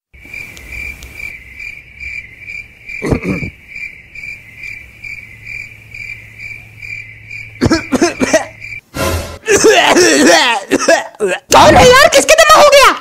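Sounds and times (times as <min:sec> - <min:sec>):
cricket chirping: 0:00.1 - 0:09.4.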